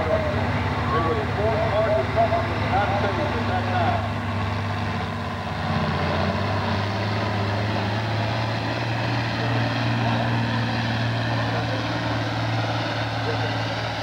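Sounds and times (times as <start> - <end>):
tractor diesel engine drone: 0.0 - 14.0.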